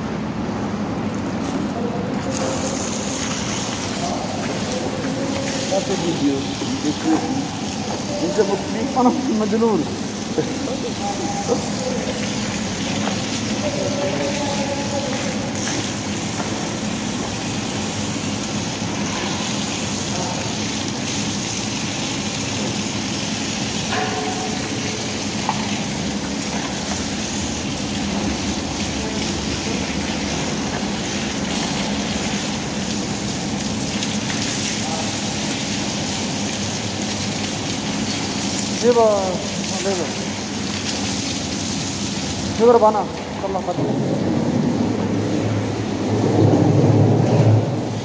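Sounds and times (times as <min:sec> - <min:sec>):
faint voices: 0:01.6 - 0:15.7.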